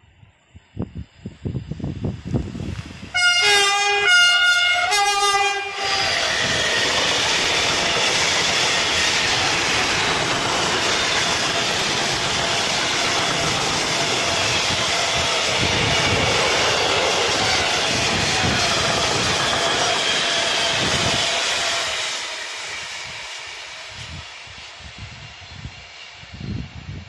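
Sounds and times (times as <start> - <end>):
freight train rumbling past: 0.5 - 27.0
locomotive horn: 3.1 - 6.3.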